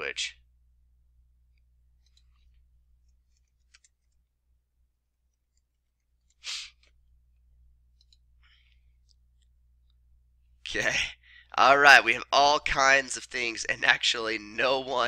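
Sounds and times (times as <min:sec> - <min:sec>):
short hiss: 0:06.4 - 0:06.8
low hum: 0:07.0 - 0:15.0.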